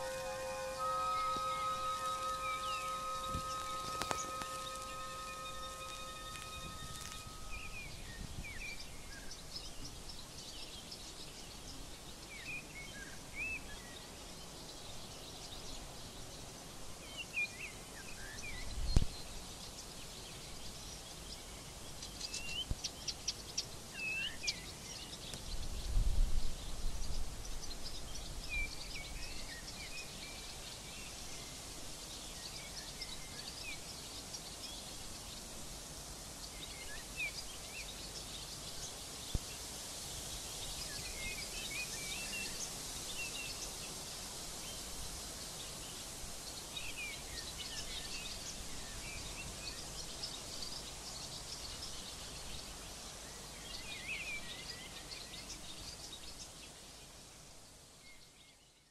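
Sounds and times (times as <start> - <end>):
small birds chirping: 0.0 - 7.8
steady high hiss: 0.0 - 8.9, 23.2 - 58.4.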